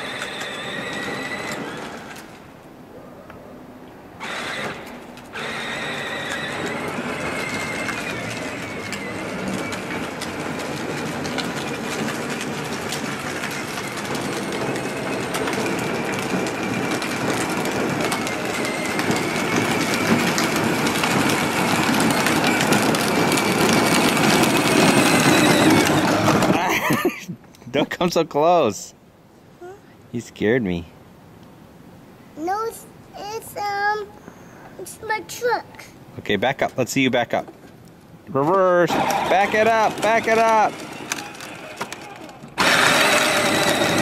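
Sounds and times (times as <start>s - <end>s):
electric motors whining: 0.0s - 2.4s, 4.2s - 26.6s, 38.9s - 44.0s
plastic wheels rumbling on pavement: 0.0s - 2.5s, 4.2s - 27.2s, 36.2s - 44.0s.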